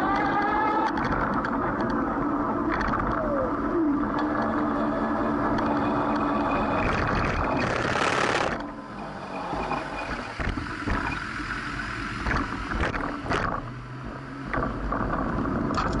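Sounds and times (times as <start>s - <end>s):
road noise: 0.0s - 16.0s
traffic and wind rush: 0.0s - 16.0s
bicycle clicks and rattles: 15.0s - 16.0s.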